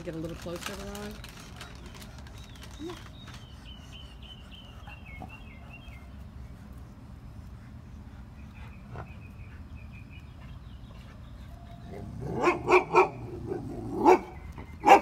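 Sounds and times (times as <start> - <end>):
dog barking: 12.2 - 15.0.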